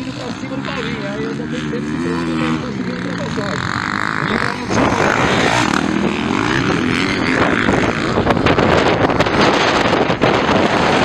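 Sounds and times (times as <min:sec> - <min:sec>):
dirt bike engines revving: 0:00.0 - 0:11.0
wind noise on microphone: 0:04.1 - 0:11.0.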